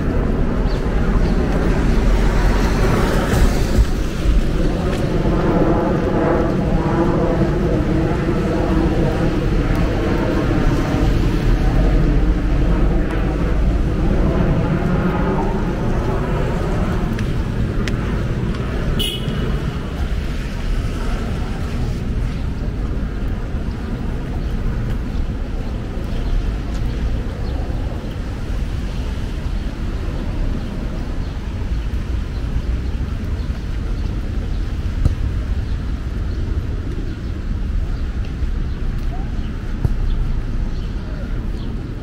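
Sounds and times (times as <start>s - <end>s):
city traffic rumble: 0.0s - 42.0s.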